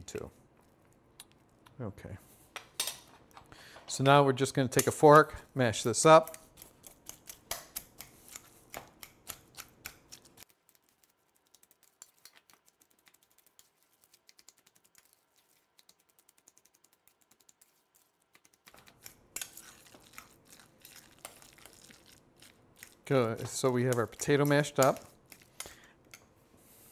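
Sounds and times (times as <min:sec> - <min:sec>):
fork tapping metal bowl: 0:23.4 - 0:26.2.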